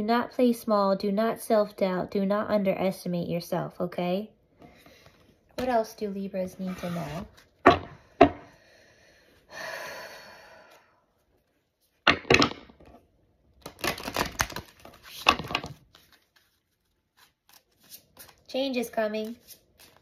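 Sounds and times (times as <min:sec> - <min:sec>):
cards shuffling: 0:13.6 - 0:20.0
cards sliding: 0:19.2 - 0:20.0
cards snapping: 0:19.2 - 0:20.0.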